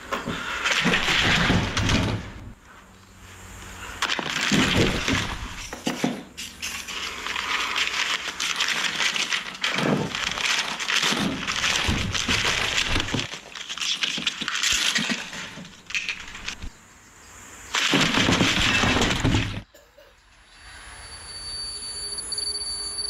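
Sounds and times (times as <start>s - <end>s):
paper rustling and crackling: 0.0s - 2.5s, 4.0s - 16.8s, 17.7s - 19.6s.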